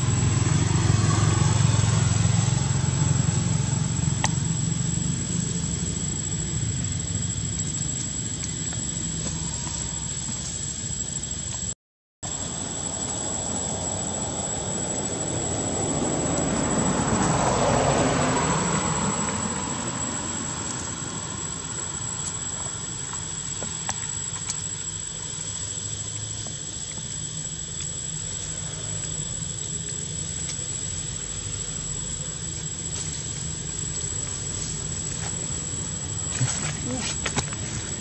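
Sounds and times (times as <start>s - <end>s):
passing vehicle engine: 0.0s - 10.5s, 12.3s - 23.7s
steady low rumble: 0.0s - 11.7s, 18.3s - 38.0s.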